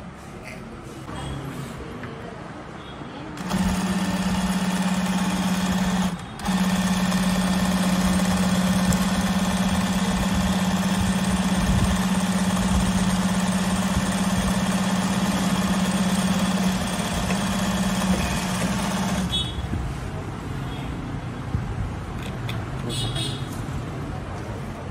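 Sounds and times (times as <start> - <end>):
sewing machine stitching: 3.4 - 19.5.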